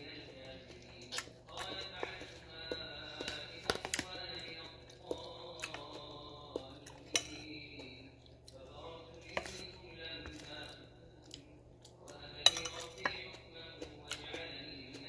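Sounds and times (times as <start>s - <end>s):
person chewing: 0.0s - 15.0s
metal spoon scraping plate: 7.1s - 7.5s, 12.4s - 13.2s.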